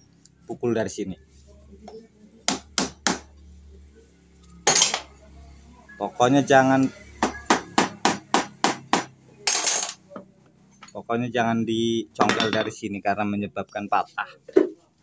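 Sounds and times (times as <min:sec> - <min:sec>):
hammer striking wooden block: 0:02.5 - 0:03.3, 0:07.2 - 0:09.1.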